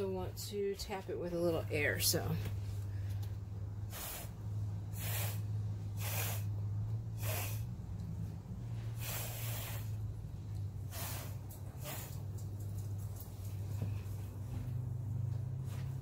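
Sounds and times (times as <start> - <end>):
steady low hum: 0.0 - 16.0
breath puffs through a straw: 3.9 - 7.8, 8.8 - 10.0, 10.8 - 12.2.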